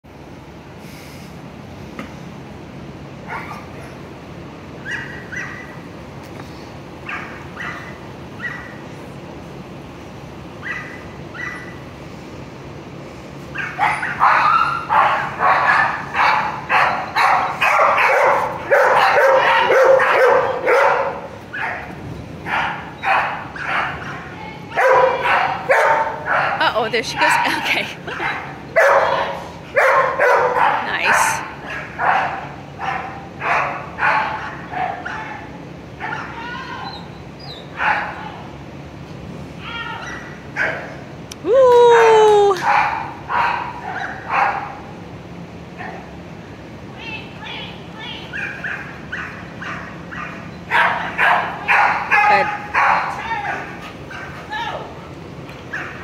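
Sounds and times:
dog barking rapidly: 4.8 - 5.8, 7.1 - 8.8, 10.6 - 11.8, 13.6 - 26.6, 27.3 - 36.4, 37.8 - 38.2, 42.6 - 44.8, 48.3 - 54.5, 55.7 - 56.0
dog whining: 4.8 - 5.8, 10.6 - 11.8, 34.3 - 37.8, 39.7 - 40.8.

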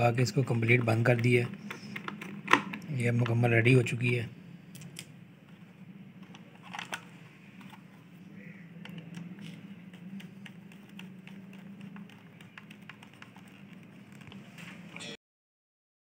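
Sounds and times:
steady low hum: 0.0 - 15.0
screwdriver clicking on plastic: 8.8 - 14.4.

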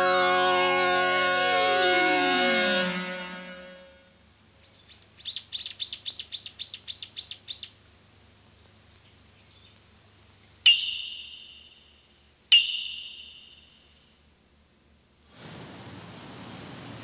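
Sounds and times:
bird calling high sliding notes: 10.7 - 14.0
sharp ringing strikes: 10.7 - 14.1.

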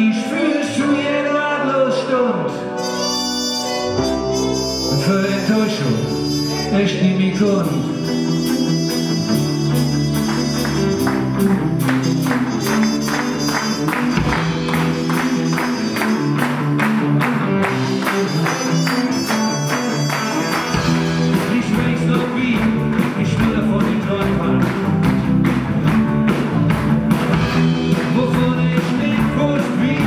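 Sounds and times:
live band playing: 0.0 - 30.0
trumpet lead: 2.1 - 17.0, 17.7 - 22.2
steady drum beat: 8.1 - 30.0.

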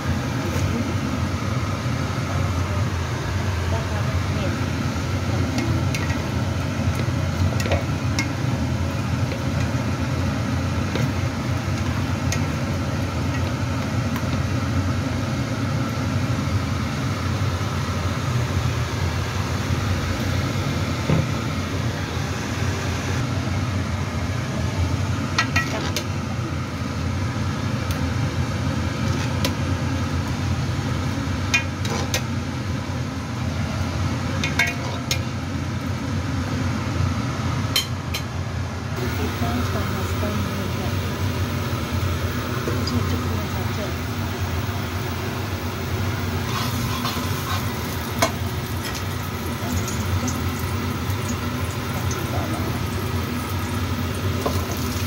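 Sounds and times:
low mechanical rumble: 0.0 - 55.0
metal utensils clinking on pot: 34.4 - 35.2.

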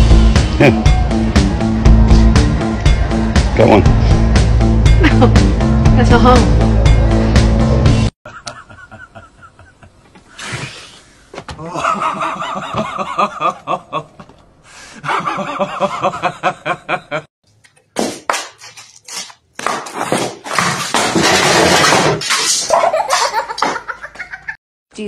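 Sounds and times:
man laughing: 0.6 - 0.8, 5.0 - 5.4, 8.3 - 10.1, 11.6 - 14.2, 15.0 - 17.3
loud scraping and clattering: 20.1 - 22.7.

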